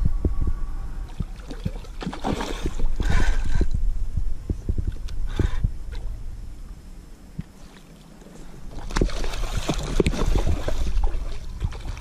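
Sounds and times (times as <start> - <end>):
short water splashes: 1.1 - 3.7, 8.7 - 12.0
water lapping around kayak: 1.1 - 3.8, 7.3 - 12.0.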